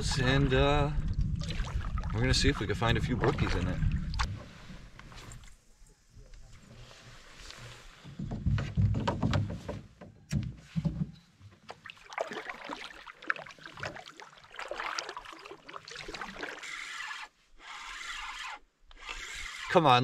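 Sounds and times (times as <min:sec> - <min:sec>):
paddle clicking and scraping: 0:06.7 - 0:11.9, 0:14.6 - 0:20.0
paddle knocking on canoe: 0:08.1 - 0:11.1.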